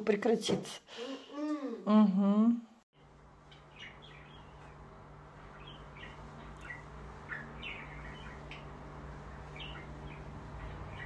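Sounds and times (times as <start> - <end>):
steady low hum: 3.0 - 11.0
small bird chirping: 3.5 - 4.8, 5.4 - 8.8, 9.4 - 11.0.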